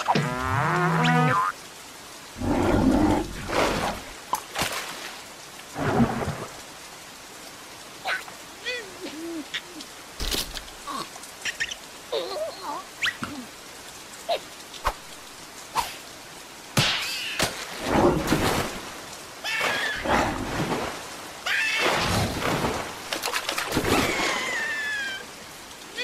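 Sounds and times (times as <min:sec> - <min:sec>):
squeaky cartoon cries: 0:19.4 - 0:20.0, 0:24.0 - 0:25.2
cartoon water splashes: 0:19.4 - 0:25.2.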